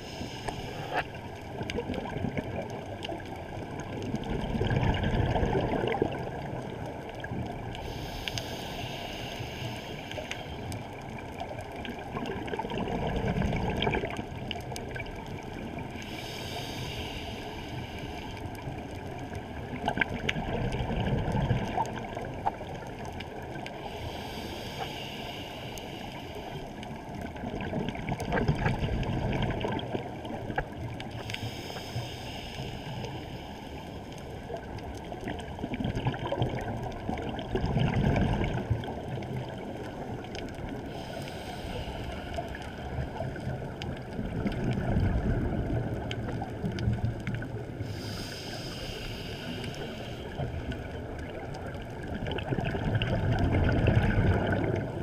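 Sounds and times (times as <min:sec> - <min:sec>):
regulator inhale hiss: 0:00.0 - 0:01.2, 0:07.8 - 0:10.9, 0:16.0 - 0:18.8, 0:23.7 - 0:26.8, 0:31.1 - 0:34.4, 0:40.7 - 0:43.2, 0:47.8 - 0:50.8
exhaled bubbles rushing underwater: 0:00.0 - 0:08.0, 0:10.5 - 0:16.6, 0:18.4 - 0:24.0, 0:27.0 - 0:31.3, 0:34.4 - 0:55.0.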